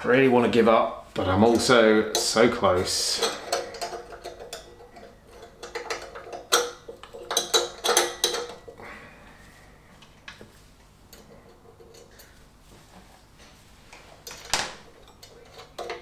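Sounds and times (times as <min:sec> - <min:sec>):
light metallic clinks and taps: 0:03.2 - 0:08.8.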